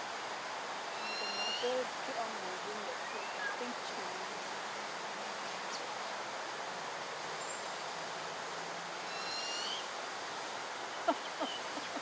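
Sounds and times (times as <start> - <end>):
insect hiss: 0.0 - 12.0
owl chick begging call: 1.0 - 1.7, 9.1 - 9.9.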